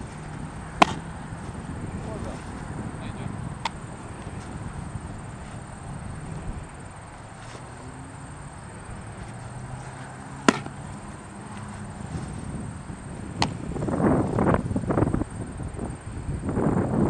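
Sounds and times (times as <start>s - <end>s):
rustle: 0.0s - 2.7s, 3.6s - 15.0s
baseball popping into leather mitt: 0.2s - 1.6s, 3.6s - 4.6s, 9.9s - 12.4s, 13.3s - 13.7s.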